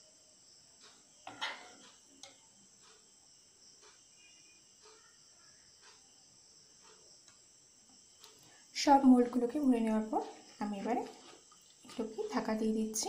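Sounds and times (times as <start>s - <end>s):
soft ticks: 0.8s - 1.1s, 1.8s - 8.5s
spoon knocking: 1.3s - 1.8s.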